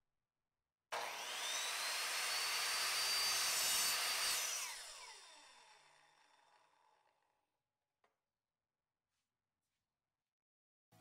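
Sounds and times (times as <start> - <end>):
miter saw whining: 1.0 - 6.6.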